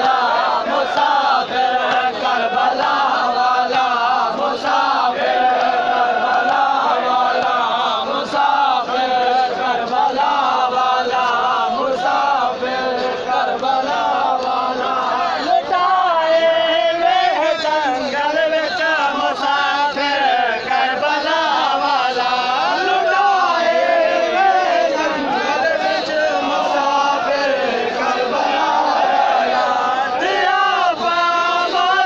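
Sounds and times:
crowd of men chanting: 0.0s - 32.0s.

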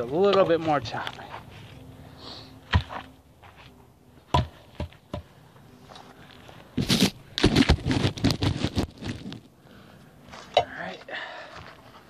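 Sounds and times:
wooden logs knocking: 4.3s - 5.3s
log bark scraping and crackling: 5.9s - 9.5s.

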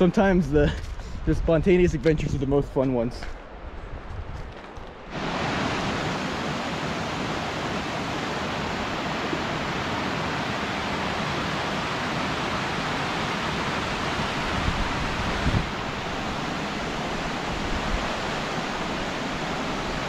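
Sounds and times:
creek rushing over boulders: 5.1s - 20.0s.

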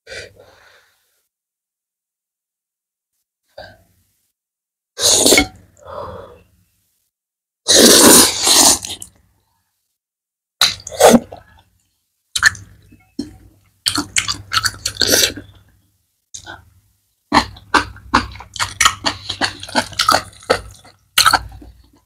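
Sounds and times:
noodle slurping: 7.7s - 9.1s.

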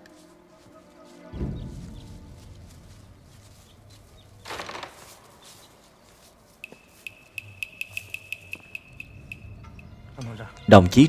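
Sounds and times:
rustle of dry brush and twigs: 0.0s - 8.7s
high steady chirring with ticks: 5.4s - 10.2s.

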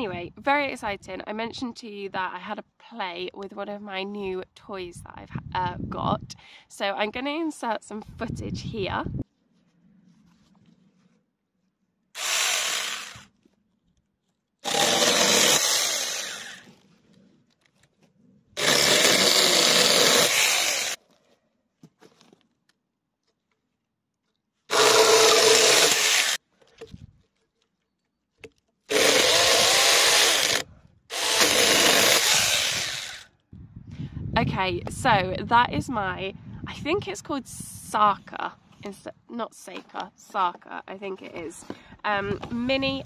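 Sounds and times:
electric chainsaw cutting log: 12.2s - 13.3s, 14.6s - 16.7s, 18.6s - 21.0s, 24.7s - 26.4s, 28.9s - 33.4s.

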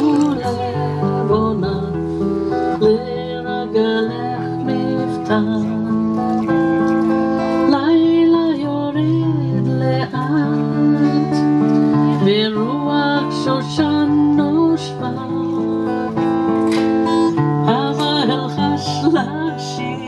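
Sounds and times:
acoustic guitar music: 0.0s - 20.0s
woman singing: 0.0s - 20.0s.

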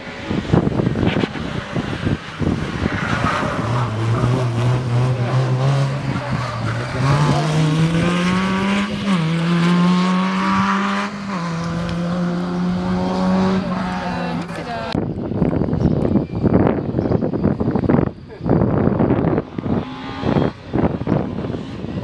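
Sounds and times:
rally car engine accelerating: 0.0s - 15.0s.

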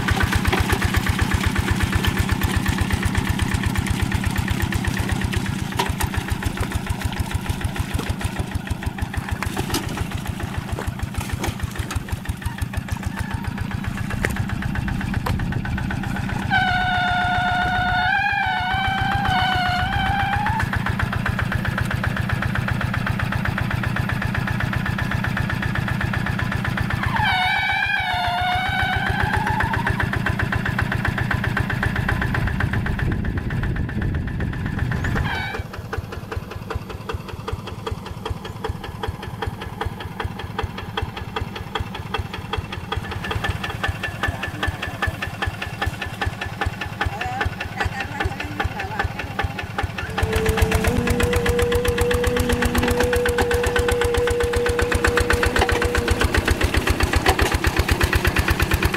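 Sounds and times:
diesel engine knocking: 0.0s - 58.9s
wavering whistle-like tone: 50.0s - 57.1s.

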